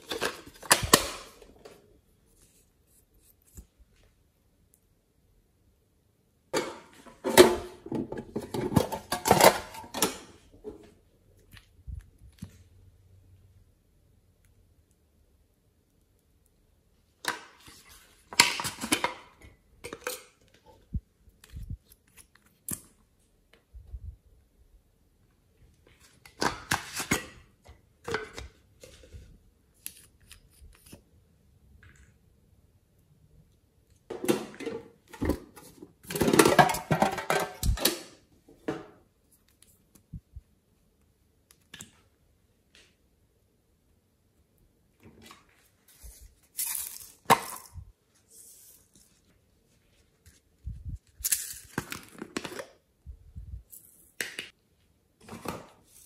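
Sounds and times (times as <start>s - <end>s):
plastic toys clattering: 6.6s - 10.4s, 34.4s - 38.2s.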